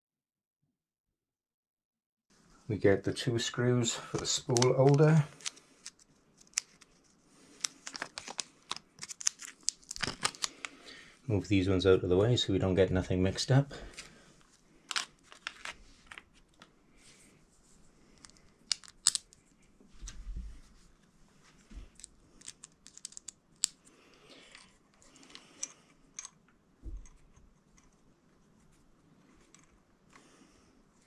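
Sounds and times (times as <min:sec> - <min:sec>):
light clicks of small parts: 0:04.1 - 0:10.8, 0:21.8 - 0:28.0.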